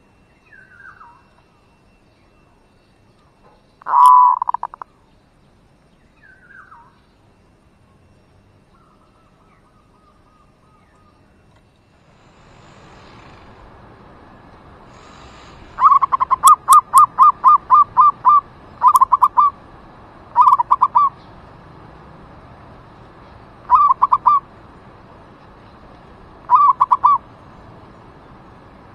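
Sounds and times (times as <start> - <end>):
dove cooing in staccato notes: 3.8 - 4.8, 15.7 - 19.7, 20.3 - 21.2, 23.6 - 24.6, 26.4 - 27.3.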